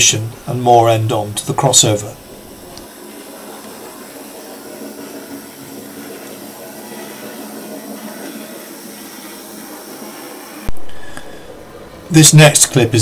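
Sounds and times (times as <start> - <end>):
model train whirring on rails: 1.2 - 10.7.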